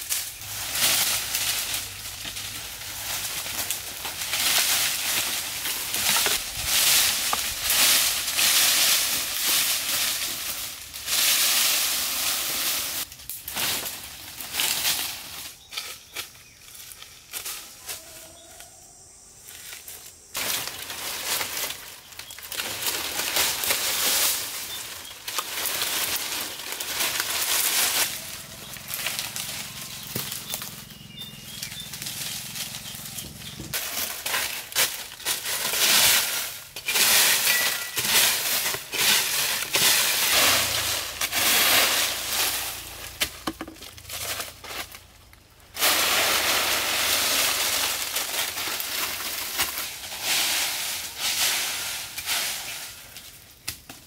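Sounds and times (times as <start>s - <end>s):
dry leaves rustling and crackling: 0.0s - 54.0s.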